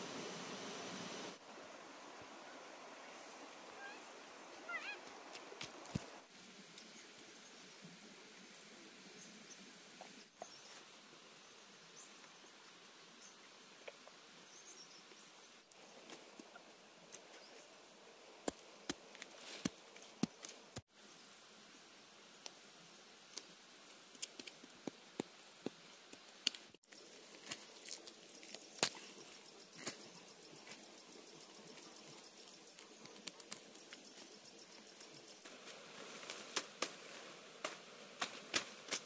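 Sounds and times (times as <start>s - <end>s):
insects droning: 26.8s - 39.0s.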